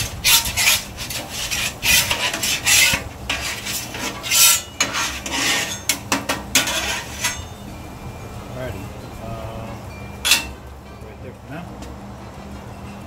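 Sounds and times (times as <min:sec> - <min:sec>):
metal spatula scraping griddle: 0:00.0 - 0:07.6.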